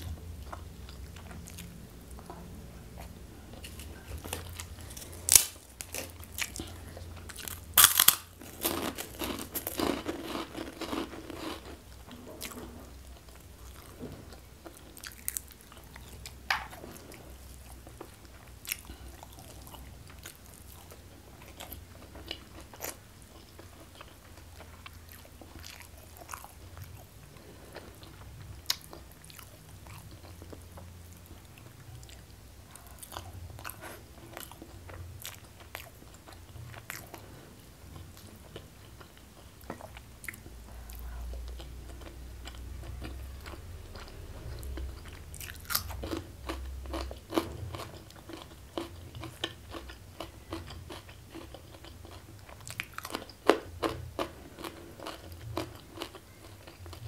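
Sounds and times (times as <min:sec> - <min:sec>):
faint low hum: 0:00.0 - 0:57.0
chewing and mouth clicks: 0:38.0 - 0:57.0.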